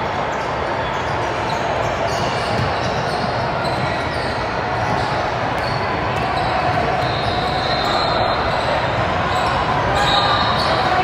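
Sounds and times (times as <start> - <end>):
murmur of voices: 0.0 - 11.0
sneakers squeaking: 0.0 - 11.0
basketball bouncing: 2.4 - 3.8.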